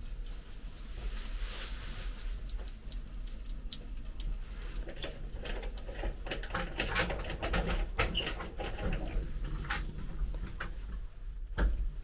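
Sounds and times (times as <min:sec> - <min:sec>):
water drips: 0:01.8 - 0:06.8
water trickling from valve: 0:02.2 - 0:10.4.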